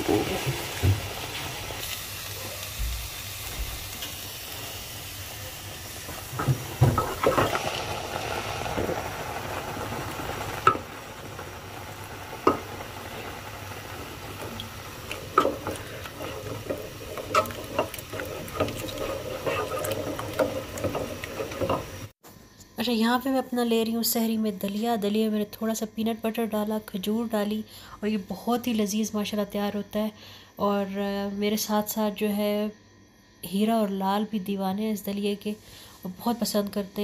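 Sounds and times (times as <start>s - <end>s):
steady hiss: 0.0s - 22.7s
spoon knocking and scraping pot: 12.4s - 12.8s, 14.3s - 22.1s.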